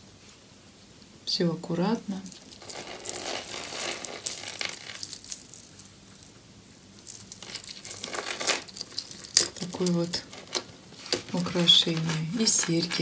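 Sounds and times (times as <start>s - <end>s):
soft rustling: 1.9s - 13.0s
beads and chain clicking: 2.2s - 13.0s.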